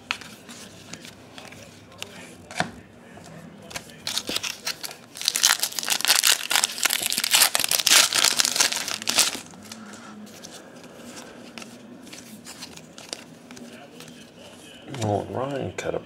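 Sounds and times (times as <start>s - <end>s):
foil wrapper crinkling: 4.0s - 9.8s.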